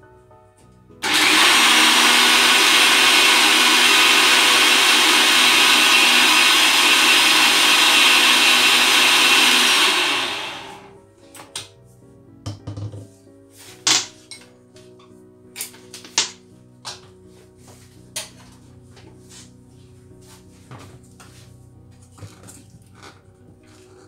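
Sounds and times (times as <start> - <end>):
blender motor running: 1.0 - 10.9.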